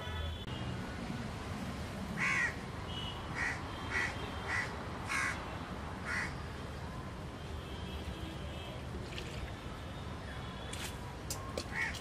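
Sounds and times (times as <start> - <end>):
crow cawing: 2.2 - 2.6, 3.4 - 5.4, 6.0 - 6.4, 11.7 - 12.0.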